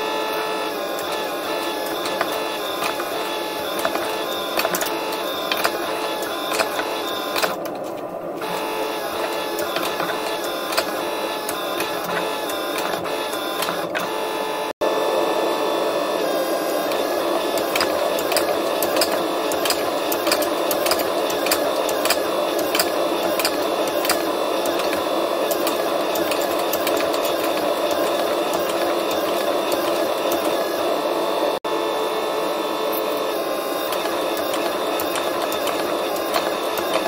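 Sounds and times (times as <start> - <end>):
hydraulic press humming: 0.0 - 37.0.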